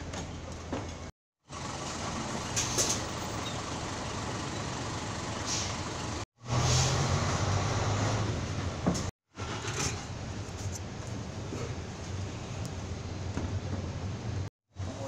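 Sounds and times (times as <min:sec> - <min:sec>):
bus engine idling: 0:00.2 - 0:06.2
bus door air hiss: 0:05.4 - 0:05.8.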